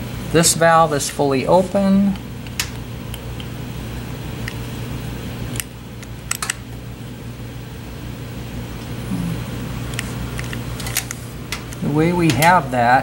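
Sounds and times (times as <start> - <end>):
low background hum: 0.0 - 13.0
light sharp mechanical clicks: 5.5 - 6.6.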